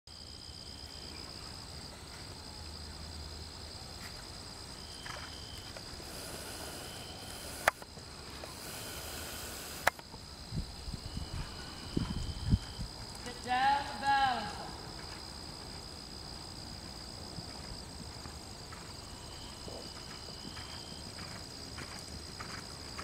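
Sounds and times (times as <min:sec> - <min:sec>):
insects trilling: 0:00.1 - 0:23.0
lower insect trill: 0:00.1 - 0:23.0
sharp clicks: 0:07.3 - 0:07.9, 0:09.7 - 0:10.1.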